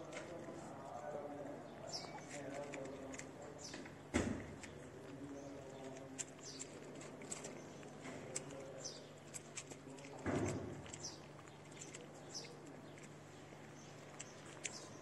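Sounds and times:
kittens chewing wet food: 0.0s - 15.0s.

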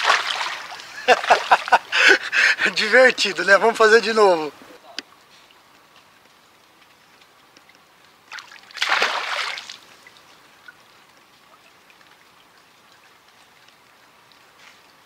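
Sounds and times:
fish splashing in water: 0.0s - 1.7s, 8.3s - 10.2s
running water: 0.0s - 15.0s.

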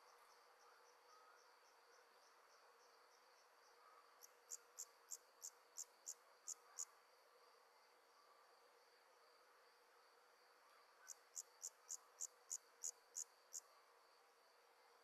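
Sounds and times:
insect sharp high chirps: 4.2s - 6.9s, 11.1s - 13.6s
crickets trilling: 11.1s - 13.6s.

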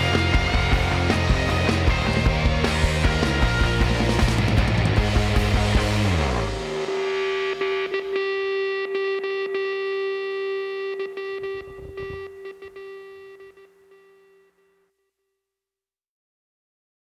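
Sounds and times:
rock music: 0.0s - 13.2s
distorted electric guitar chord: 0.0s - 14.5s.

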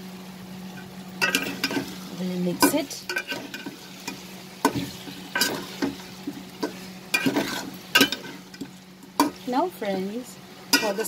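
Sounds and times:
soft frying sizzle: 0.0s - 11.0s
spatula scraping a metal pot: 6.6s - 8.5s.

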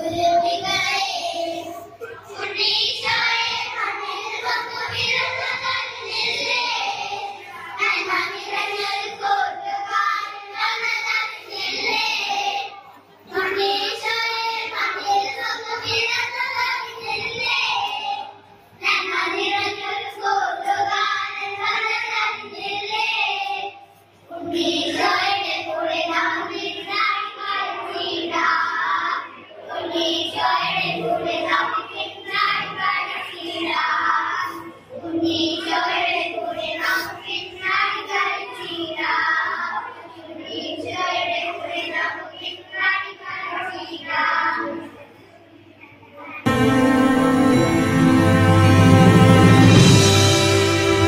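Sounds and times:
children singing together: 0.0s - 45.0s, 46.5s - 51.0s
recorded music: 46.5s - 51.0s.

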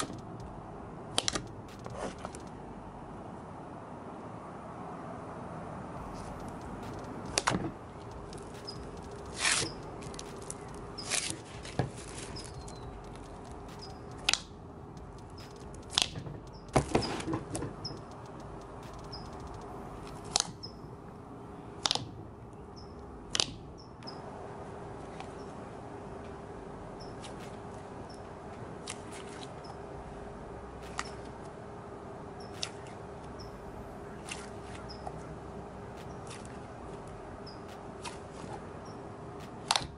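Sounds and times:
faint hum: 0.0s - 39.9s
steady background hiss: 0.0s - 39.9s
steady hiss: 5.6s - 21.8s.

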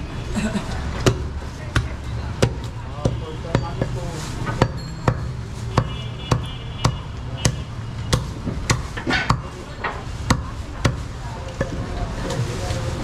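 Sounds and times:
cleaver chopping meat: 1.0s - 9.5s.

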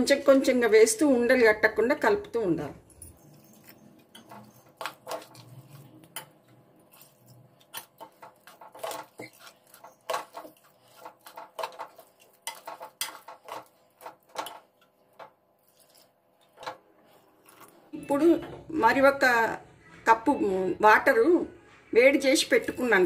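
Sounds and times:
spoon scraping pressure cooker: 3.2s - 16.8s.

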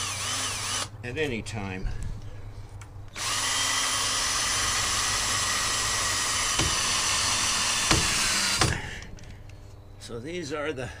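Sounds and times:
cordless drill motor whine: 0.0s - 0.9s, 3.1s - 8.7s.

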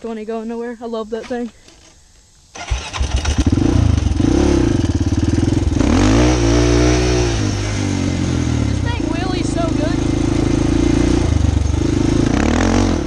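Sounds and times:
quad engine revving: 2.6s - 13.0s.

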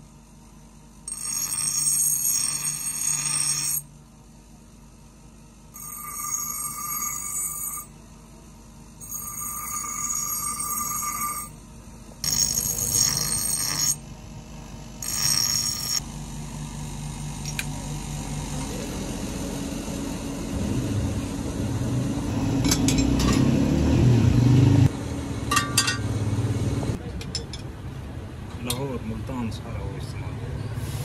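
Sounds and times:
bench grinder screeching on metal: 1.1s - 3.8s, 5.8s - 7.9s, 9.0s - 11.6s, 12.2s - 14.0s, 15.0s - 16.0s.

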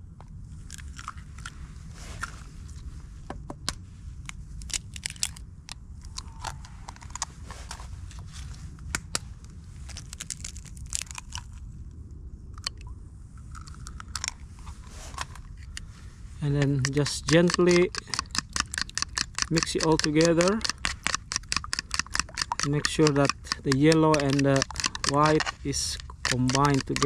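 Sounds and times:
low steady rumble: 0.0s - 27.0s
eggshells cracking: 4.6s - 5.4s, 9.9s - 11.6s, 16.5s - 27.0s.

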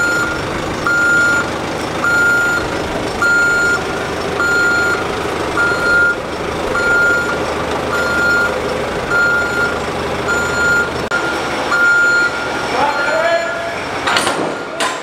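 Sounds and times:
reversing alarm beeping: 0.0s - 5.0s, 5.6s - 15.0s
diesel engine running: 0.0s - 15.0s.

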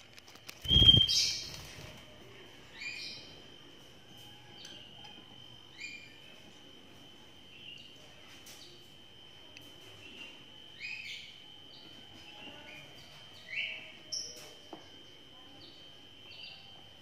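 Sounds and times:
bird chicks chirping: 0.6s - 1.8s.

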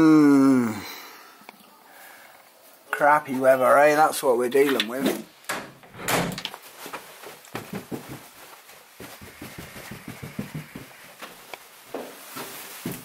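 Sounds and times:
footsteps indoors: 4.7s - 13.0s.

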